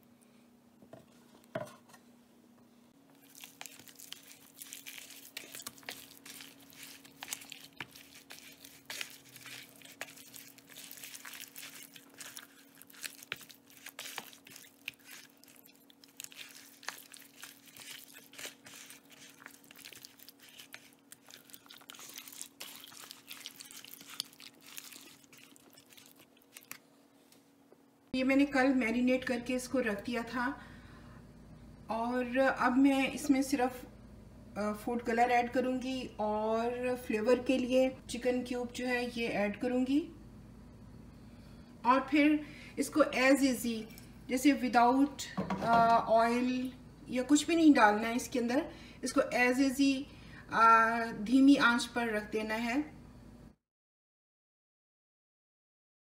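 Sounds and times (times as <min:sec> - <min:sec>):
faint steady hum: 0:00.0 - 0:53.6
hands squelching raw chicken: 0:03.1 - 0:26.8.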